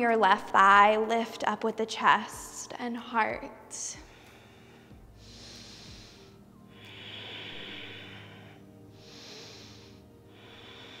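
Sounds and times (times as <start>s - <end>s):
quiet background music: 0.0s - 11.0s
woman breathing deeply: 4.0s - 11.0s.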